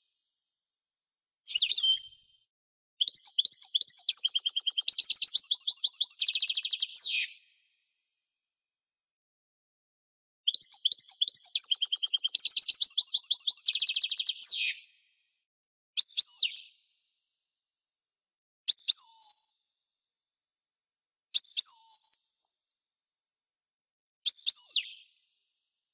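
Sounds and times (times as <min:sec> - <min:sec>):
goldfinch twittering song: 0:03.1 - 0:07.2, 0:10.5 - 0:14.6.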